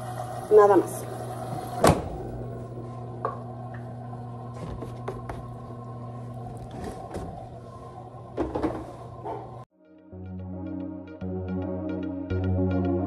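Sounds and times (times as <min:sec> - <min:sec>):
washing machine humming: 0:00.0 - 0:09.7.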